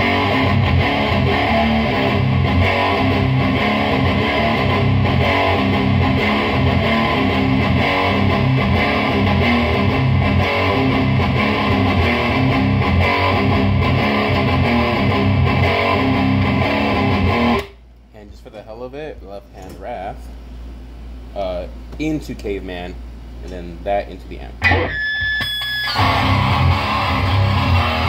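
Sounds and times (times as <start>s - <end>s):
distorted electric guitar riffs: 0.0s - 17.8s, 24.6s - 28.0s.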